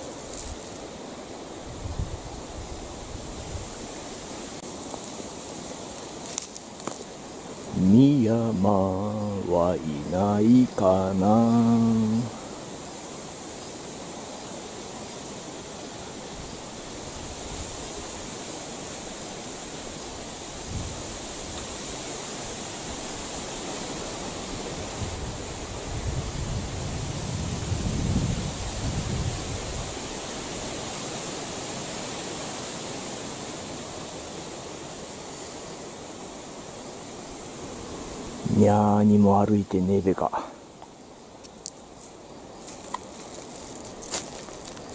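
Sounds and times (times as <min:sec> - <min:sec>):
wind in forest canopy: 0:00.0 - 0:44.9
wind rumble on microphone: 0:01.5 - 0:04.6, 0:16.3 - 0:31.0.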